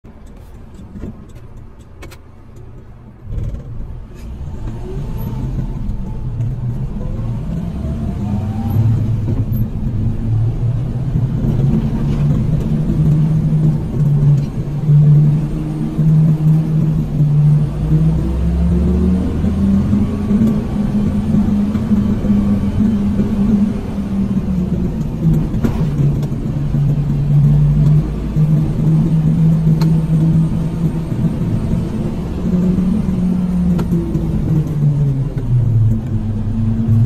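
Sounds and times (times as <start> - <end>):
vehicle engine accelerating: 3.2 - 37.0.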